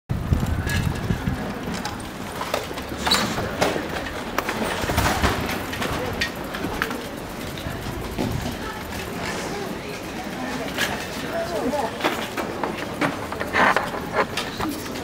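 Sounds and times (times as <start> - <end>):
scattered knocks and clicks: 0.3 - 9.4, 11.9 - 15.0.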